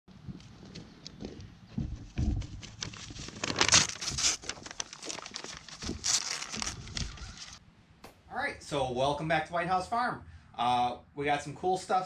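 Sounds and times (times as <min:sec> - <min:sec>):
paper crinkling and tearing: 0:02.4 - 0:07.6.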